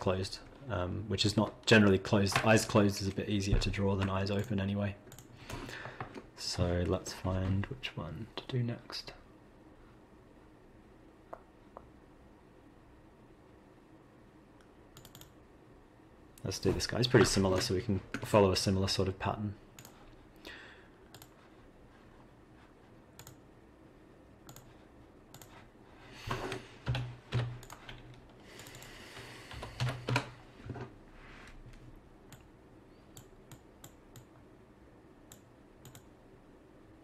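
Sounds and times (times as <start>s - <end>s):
keyboard and mouse clicks: 3.9s - 5.3s, 14.6s - 15.4s, 21.1s - 21.4s, 23.2s - 23.4s, 24.5s - 25.6s, 26.8s - 28.9s, 29.5s - 30.9s, 32.3s - 32.5s, 33.1s - 34.4s, 35.3s - 36.1s.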